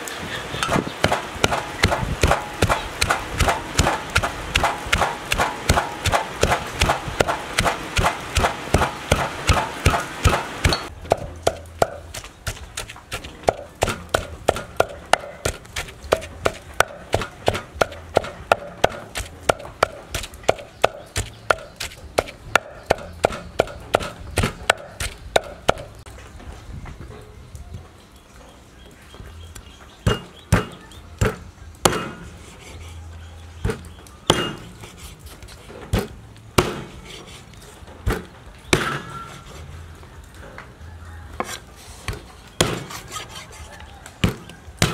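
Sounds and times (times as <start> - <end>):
pestle pounding in mortar: 0.7 - 26.0.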